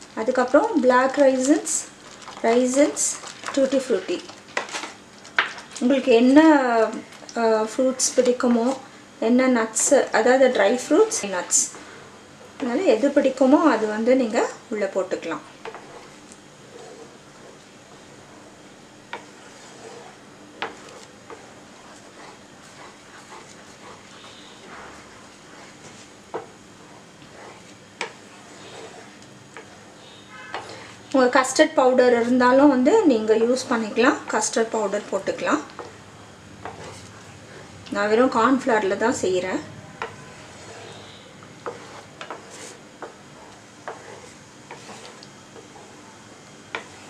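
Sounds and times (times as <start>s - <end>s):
spatula scraping pudding: 12.6s - 31.0s, 33.6s - 36.0s, 36.6s - 37.7s, 39.9s - 47.0s.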